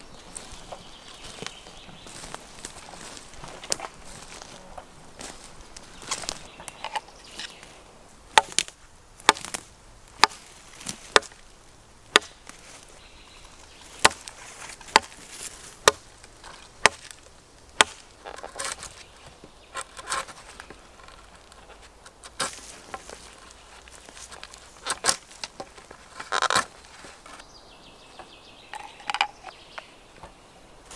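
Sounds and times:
knife chopping into wood: 0:08.4 - 0:09.6, 0:10.2 - 0:10.4, 0:11.1 - 0:11.4, 0:12.1 - 0:12.4, 0:14.0 - 0:15.2, 0:15.8 - 0:16.1, 0:16.8 - 0:17.2, 0:17.8 - 0:18.8
blade scraping wood: 0:17.8 - 0:27.4.

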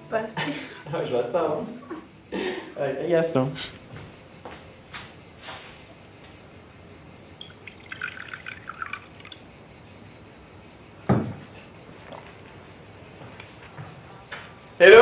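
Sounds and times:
metal coffee pot clinking: 0:07.4 - 0:09.4
pot thumping on wooden table: 0:11.1 - 0:11.4.

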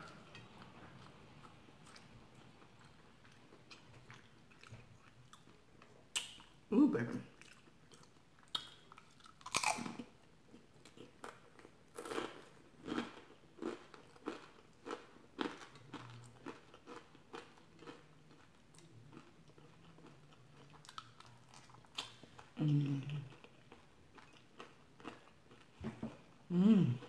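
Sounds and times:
crunchy chewing: 0:07.4 - 0:10.0.

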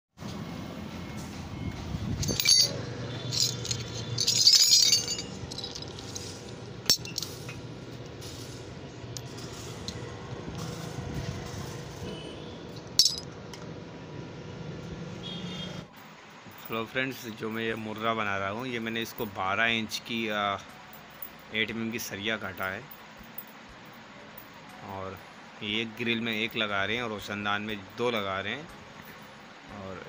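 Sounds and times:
small metal pieces clinking: 0:02.2 - 0:07.5, 0:13.0 - 0:13.2.

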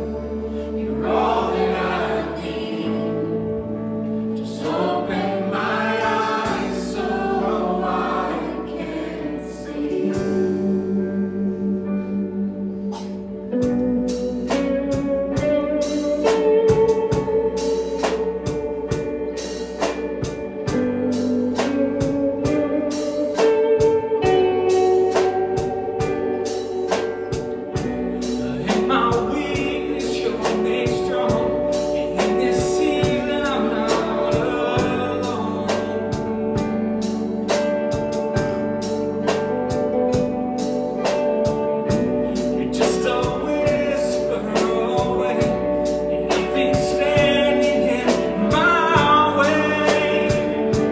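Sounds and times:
voices singing: 0:00.0 - 0:10.8, 0:28.2 - 0:36.8, 0:42.4 - 0:50.9
worship band playing: 0:00.0 - 0:50.9.

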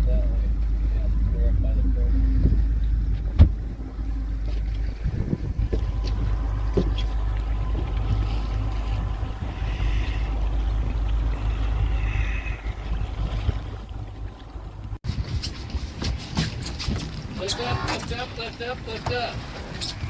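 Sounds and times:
outboard motors humming: 0:00.0 - 0:20.0
wind on microphone: 0:00.8 - 0:18.0.

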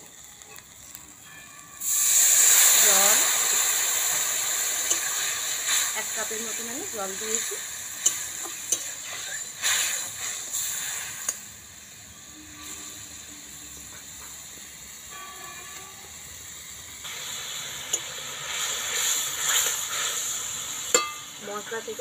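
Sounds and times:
masala simmering and sizzling: 0:00.0 - 0:22.0
metal spatula scraping pan: 0:04.8 - 0:11.4, 0:12.1 - 0:13.2.

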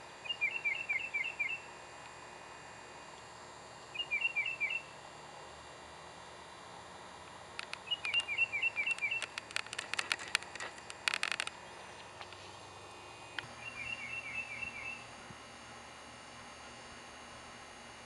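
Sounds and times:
songbird chirping: 0:00.2 - 0:01.7, 0:04.0 - 0:04.9, 0:07.8 - 0:09.4, 0:13.3 - 0:15.1
sharp clicks and ticks: 0:07.6 - 0:11.6.

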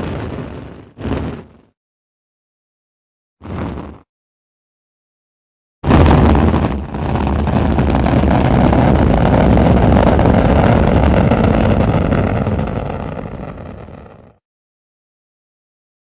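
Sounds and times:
rocket engine roar: 0:05.9 - 0:14.3.

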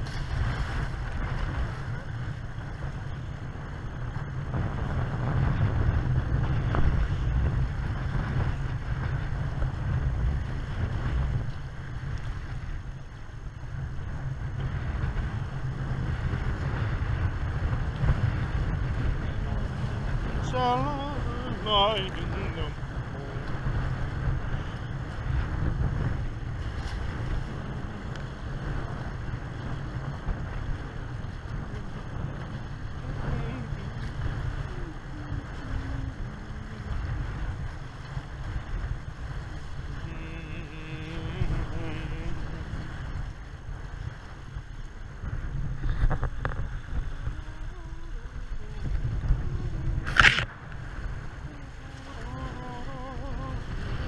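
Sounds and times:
water rushing along hulls: 0:00.0 - 0:54.0
wind buffeting microphone: 0:00.0 - 0:54.0.

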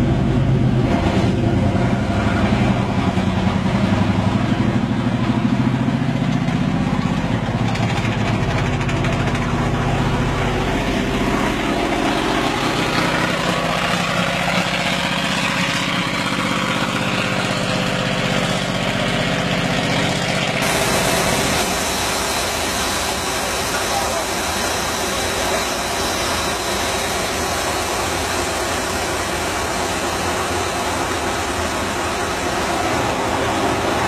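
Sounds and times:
tracked vehicle engine running: 0:00.0 - 0:34.0
road and wind noise hiss: 0:09.1 - 0:34.0.

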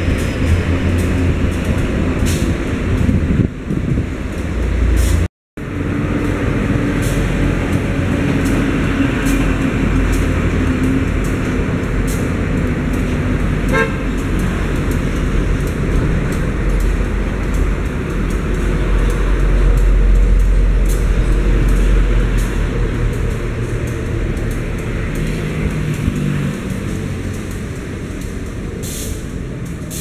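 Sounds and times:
locomotive engine rumble: 0:00.0 - 0:30.0
short train horn toot: 0:13.7 - 0:14.1.

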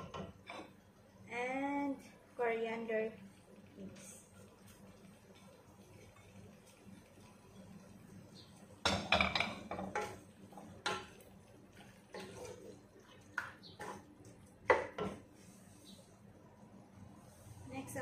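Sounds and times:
wooden spoon stirring in pot: 0:03.4 - 0:08.2, 0:09.3 - 0:16.2.

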